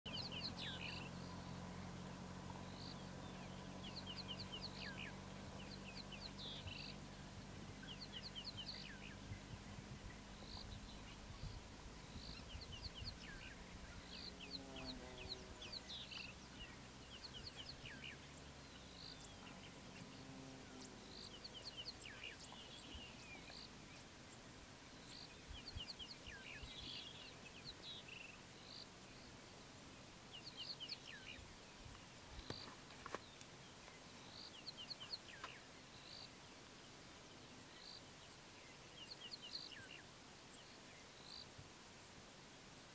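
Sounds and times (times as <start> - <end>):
birds chirping: 0.0 - 41.6
vehicle engine idling: 0.1 - 24.1.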